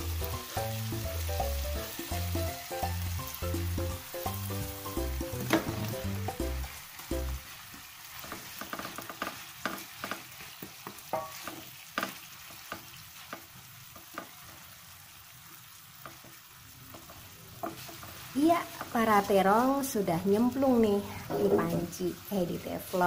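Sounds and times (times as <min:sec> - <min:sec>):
vegetables sizzling in oil: 0:00.0 - 0:23.0
wooden spatula knocking on pan: 0:05.0 - 0:06.6, 0:08.2 - 0:14.4, 0:21.3 - 0:21.9.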